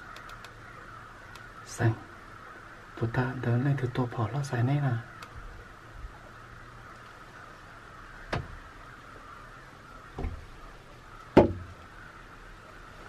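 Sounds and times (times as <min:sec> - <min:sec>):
faint steady hiss: 0:00.0 - 0:13.0
sharp knocks: 0:08.3 - 0:08.6, 0:10.2 - 0:10.5, 0:11.4 - 0:11.7.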